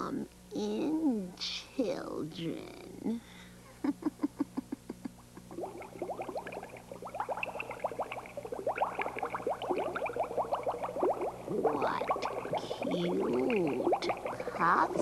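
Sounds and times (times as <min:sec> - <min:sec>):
rapid bubbling and gurgling: 0:05.2 - 0:15.0.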